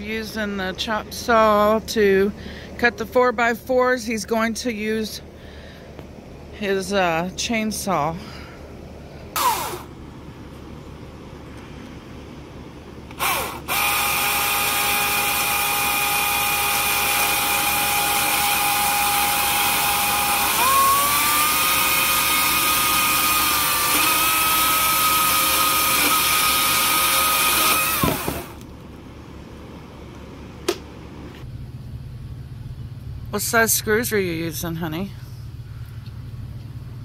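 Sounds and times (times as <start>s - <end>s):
electric chainsaw cutting wood: 9.4s - 10.0s, 13.1s - 28.6s.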